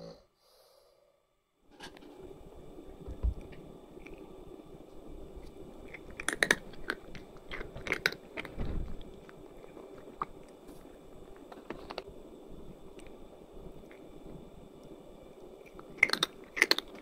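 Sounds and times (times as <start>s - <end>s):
cat crunching dry kibble: 5.3s - 12.1s, 15.6s - 17.0s.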